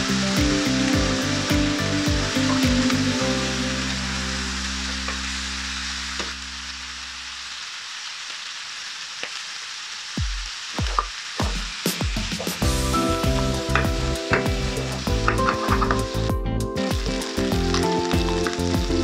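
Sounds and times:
background music: 0:00.0 - 0:06.1, 0:12.5 - 0:19.0
chicken feet sizzling in a pan: 0:00.0 - 0:19.0.

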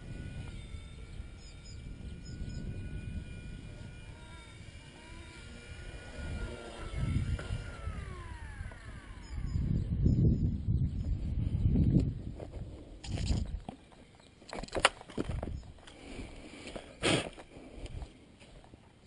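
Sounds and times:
rc helicopter rotor whining: 0:00.0 - 0:13.8
bird chirps: 0:00.8 - 0:02.9, 0:09.1 - 0:11.8.

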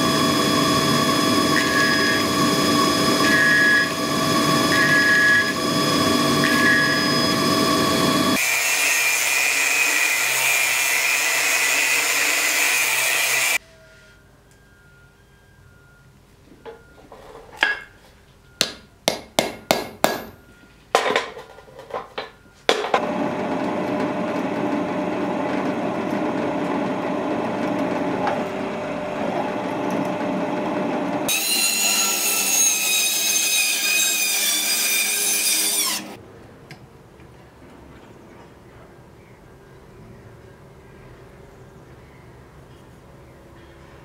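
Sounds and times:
drill press drilling steel: 0:00.0 - 0:13.6
hammer striking punch on steel: 0:18.6 - 0:20.4.

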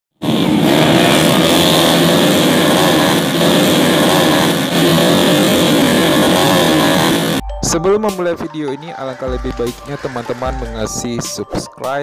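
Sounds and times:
motorcycle engines buzzing: 0:00.1 - 0:07.4.

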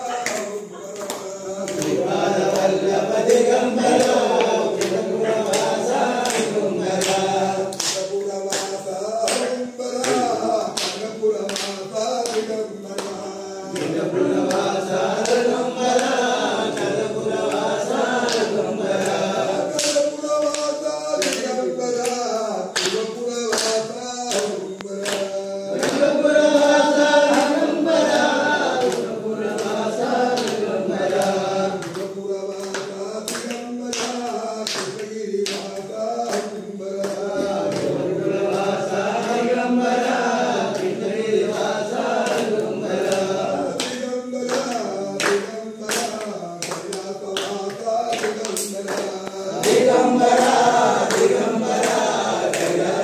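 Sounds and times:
men singing a chant: 0:00.0 - 0:53.0
rhythmic hand claps: 0:00.0 - 0:53.0.

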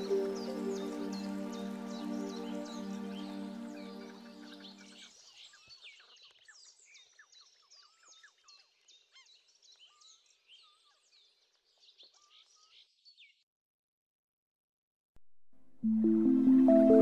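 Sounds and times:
lower warbled bird notes: 0:00.0 - 0:05.1, 0:15.8 - 0:17.0
songbirds chirping: 0:00.0 - 0:13.4.

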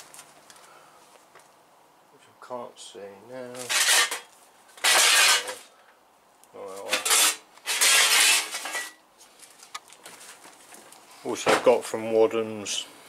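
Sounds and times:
metallic clattering and rustling: 0:06.8 - 0:11.7.

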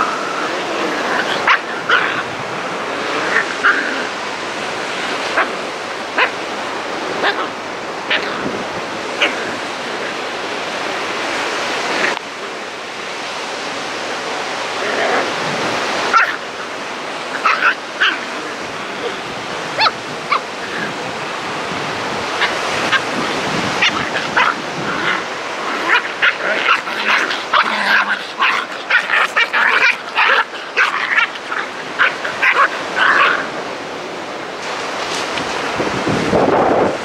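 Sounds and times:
puppies yipping and barking: 0:00.0 - 0:04.3, 0:15.0 - 0:21.0, 0:22.2 - 0:33.7.

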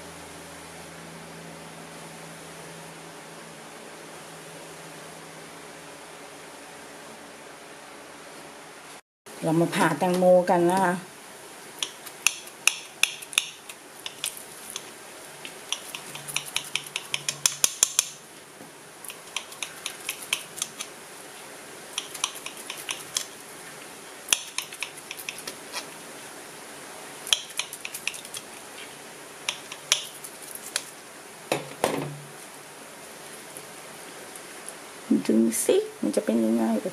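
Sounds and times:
knife tapping plate: 0:11.8 - 0:14.9, 0:15.5 - 0:18.2, 0:19.1 - 0:20.9, 0:22.0 - 0:23.3, 0:24.3 - 0:25.6, 0:27.3 - 0:28.4, 0:29.5 - 0:30.9
knife crackling through slime beads: 0:11.8 - 0:18.2, 0:19.1 - 0:20.9, 0:22.0 - 0:23.4, 0:24.3 - 0:26.0, 0:27.3 - 0:28.9, 0:29.5 - 0:31.0.

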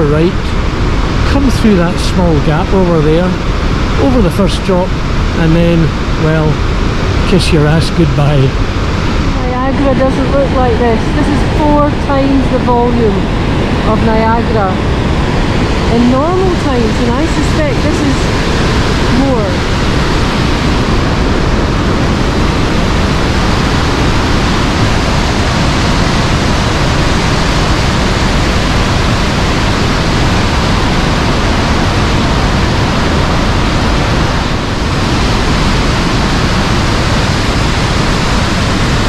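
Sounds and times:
loud waterfall rushing: 0:13.4 - 0:39.0.

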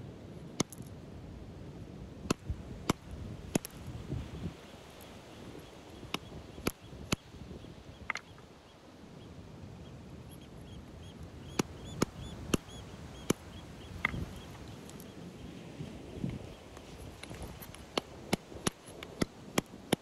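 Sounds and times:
stone on stone clacks: 0:08.0 - 0:08.4.

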